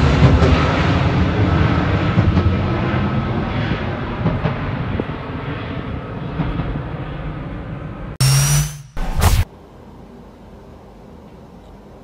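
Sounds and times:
jet engines rumbling overhead: 0.0 - 8.2.

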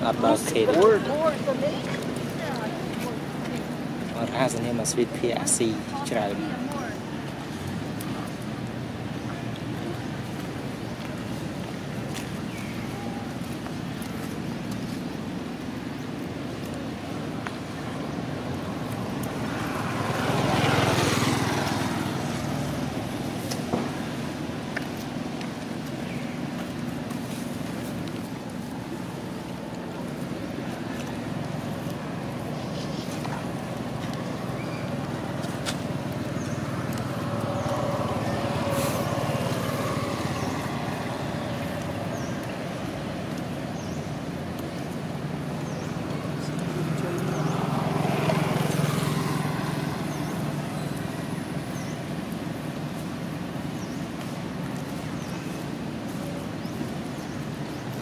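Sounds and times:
motor vehicle passing: 17.6 - 55.9.

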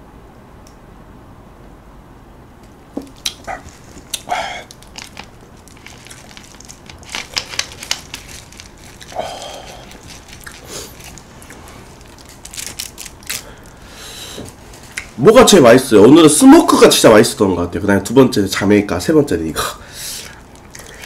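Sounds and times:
plastic bottle crinkling: 3.0 - 13.8.

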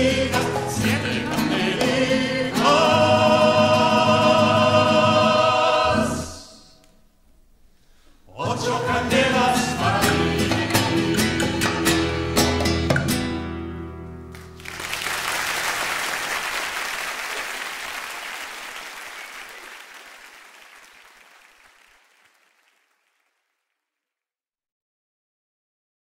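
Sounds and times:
audience applauding: 14.3 - 23.5.

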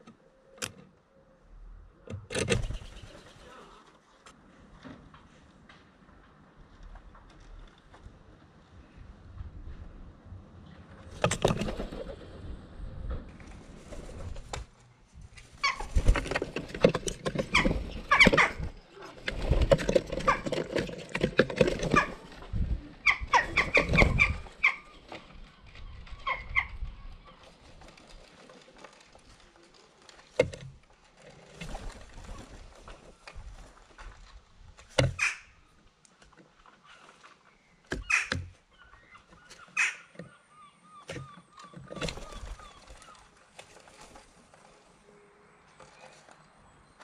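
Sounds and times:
wings flapping: 11.1 - 12.6, 13.3 - 14.8, 15.4 - 30.2, 41.8 - 44.4
claws scrabbling on wood: 15.4 - 22.6
harsh bird calls: 37.6 - 43.4.

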